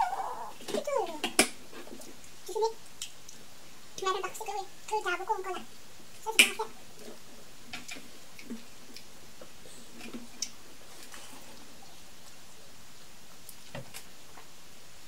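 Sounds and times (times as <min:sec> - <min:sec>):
low steady hiss: 0:00.0 - 0:15.0
soft rustles of eating: 0:00.0 - 0:15.0.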